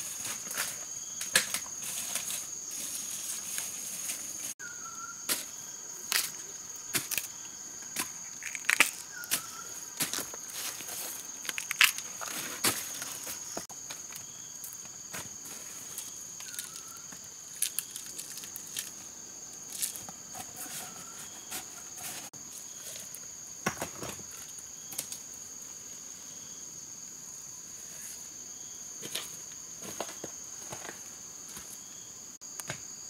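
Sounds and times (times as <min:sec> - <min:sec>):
dry bamboo leaves crackling: 0:08.4 - 0:13.2, 0:15.5 - 0:20.0.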